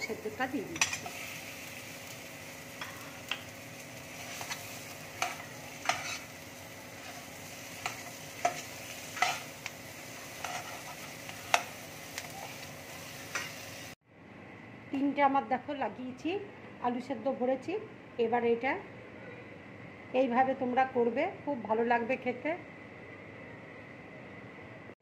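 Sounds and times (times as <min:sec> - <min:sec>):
oil sizzling in a frying pan: 0:00.0 - 0:14.0
spatula scraping a pan: 0:04.1 - 0:11.8.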